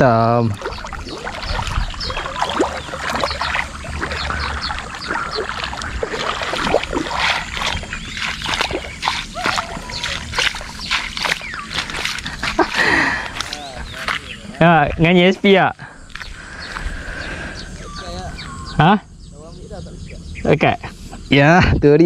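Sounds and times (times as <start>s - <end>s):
splashing in shallow water: 0.0s - 14.4s.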